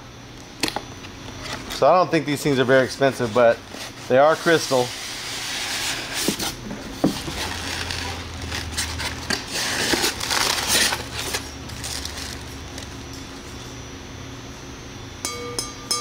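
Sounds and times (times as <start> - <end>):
wrapping rustling and crinkling: 2.5 - 13.0.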